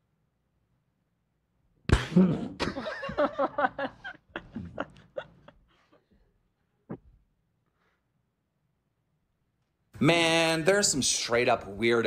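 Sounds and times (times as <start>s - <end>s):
person laughing: 2.0s - 5.8s.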